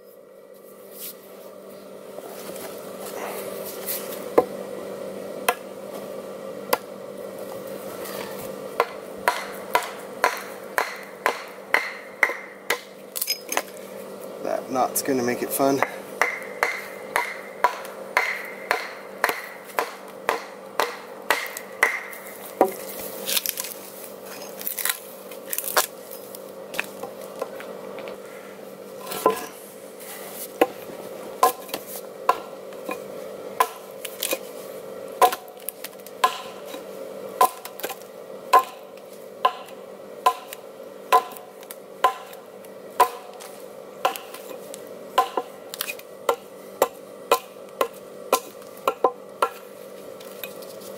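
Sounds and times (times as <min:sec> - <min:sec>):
hatchet struck with wooden mallet: 0:08.8 - 0:12.9, 0:15.8 - 0:22.8, 0:36.2 - 0:36.6, 0:37.4 - 0:38.8, 0:39.4 - 0:42.4, 0:43.0 - 0:43.4, 0:44.0 - 0:44.5, 0:45.2 - 0:45.5, 0:46.3 - 0:49.6
axe chopping log: 0:08.8 - 0:13.7, 0:15.9 - 0:23.7, 0:31.4 - 0:33.0, 0:33.6 - 0:34.5, 0:35.2 - 0:36.8, 0:37.4 - 0:42.4, 0:43.0 - 0:44.6, 0:45.2 - 0:49.6.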